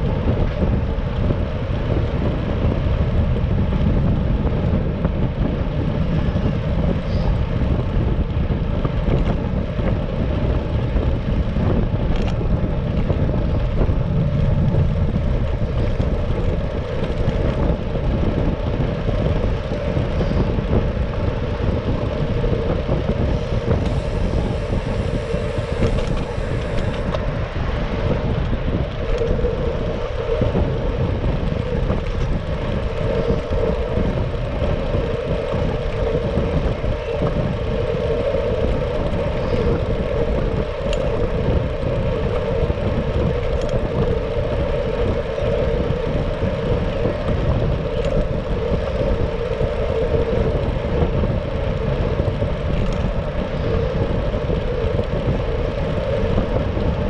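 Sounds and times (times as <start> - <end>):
road noise: 0.0 - 57.0
wind rushing: 0.0 - 57.0
faint high whine: 23.2 - 27.2.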